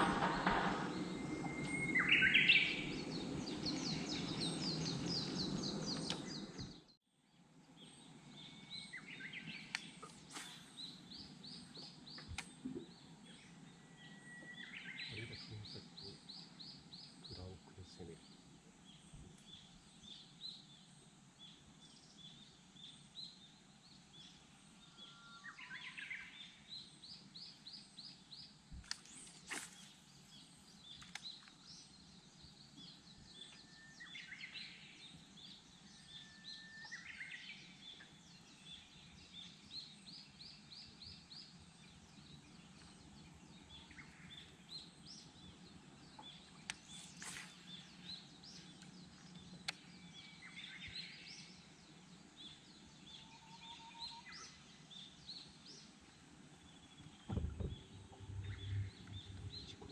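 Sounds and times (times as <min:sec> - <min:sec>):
high bird chirps: 0:00.0 - 0:06.9
faint low hum: 0:00.0 - 0:37.0, 0:37.6 - 0:59.9.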